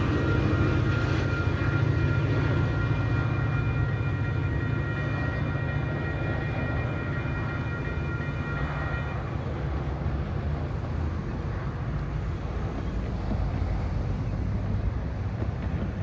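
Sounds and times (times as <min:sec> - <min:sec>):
diesel locomotive rumble: 0:00.0 - 0:16.0
high steady whine: 0:00.0 - 0:16.0.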